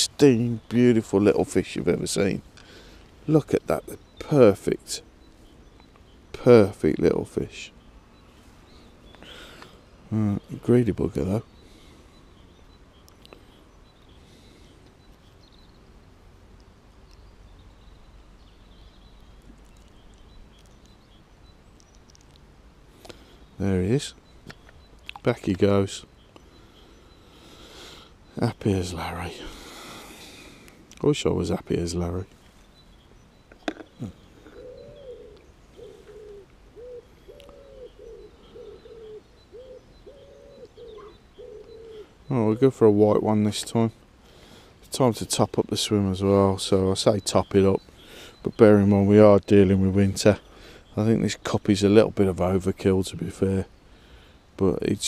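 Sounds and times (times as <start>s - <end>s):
faint bird chirps: 0.0s - 55.0s
wood pigeon cooing: 33.5s - 43.0s.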